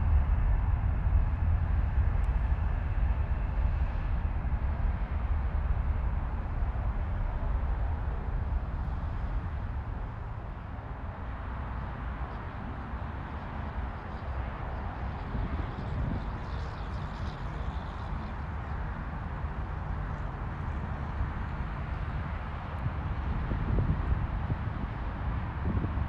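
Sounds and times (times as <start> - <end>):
jet engines rumbling: 0.0 - 26.0.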